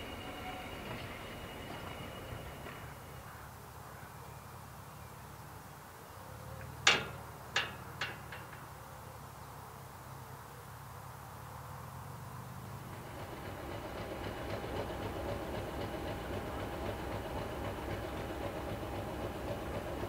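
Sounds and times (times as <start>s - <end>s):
signal mechanism clanking: 6.8s - 8.7s.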